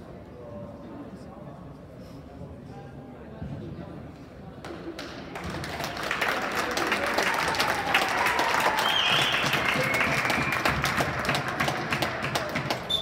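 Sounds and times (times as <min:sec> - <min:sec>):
spectators clapping: 0:05.0 - 0:13.0.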